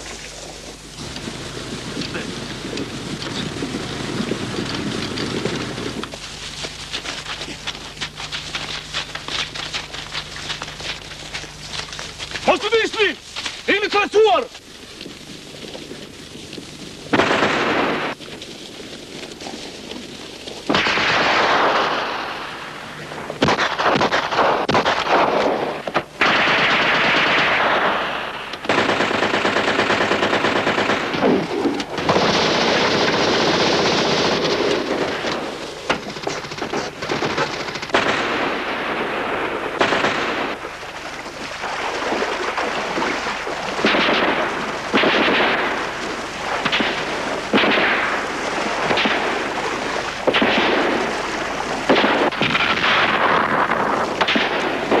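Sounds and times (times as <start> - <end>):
machine-gun fire: 17.1 - 18.2, 20.7 - 22.8, 23.4 - 40.9, 41.7 - 55.0
rifle shots: 17.1 - 18.2, 20.7 - 22.7, 23.4 - 40.8, 43.7 - 55.0.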